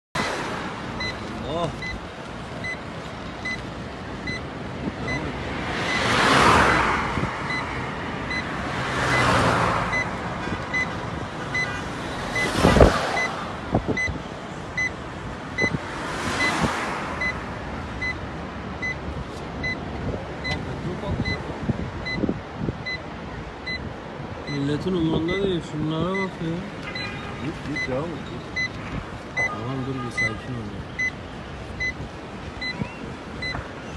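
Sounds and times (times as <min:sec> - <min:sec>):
vehicles whooshing past: 0:00.2 - 0:29.8
faint high beep: 0:32.6 - 0:33.6.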